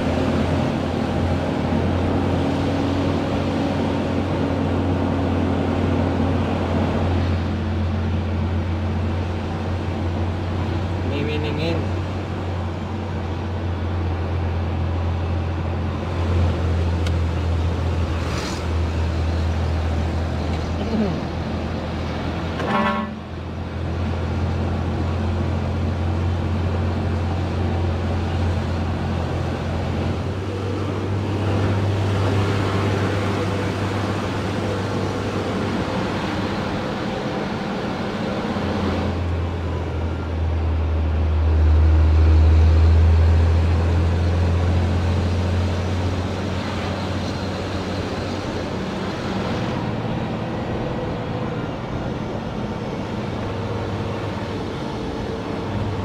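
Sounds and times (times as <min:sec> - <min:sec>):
road noise: 0:00.0 - 0:56.0
truck diesel engine drone: 0:00.0 - 0:56.0.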